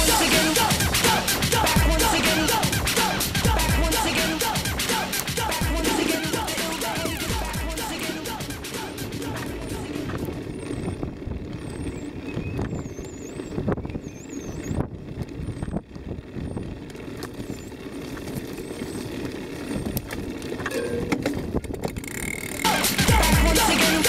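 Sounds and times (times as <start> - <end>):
bike tyres and frame rattling: 0.0 - 24.0
wind on microphone: 9.0 - 22.0.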